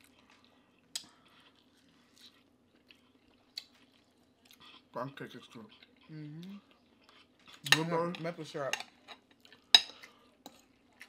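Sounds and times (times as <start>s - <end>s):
chewing food: 0.0s - 11.0s
faint low hum: 0.0s - 11.0s.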